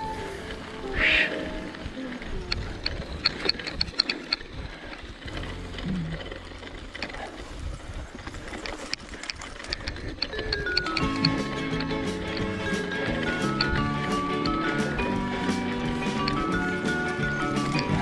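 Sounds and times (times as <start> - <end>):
bike tyres rumbling on dirt: 0.0 - 18.0
freehub clicking: 2.5 - 7.4, 8.2 - 15.0.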